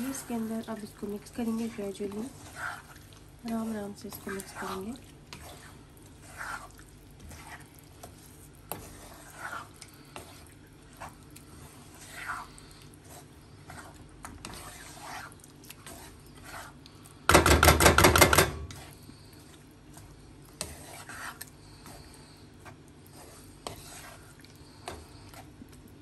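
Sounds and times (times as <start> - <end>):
wooden spatula scraping frying pan: 0.0 - 25.6.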